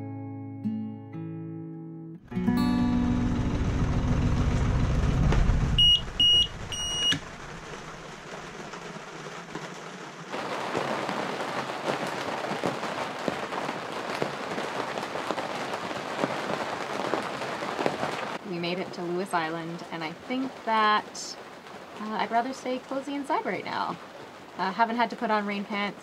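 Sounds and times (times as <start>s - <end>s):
boat engine running: 2.4s - 8.1s
rain pattering on canvas: 5.2s - 26.0s
short alarm beeps: 5.8s - 7.2s.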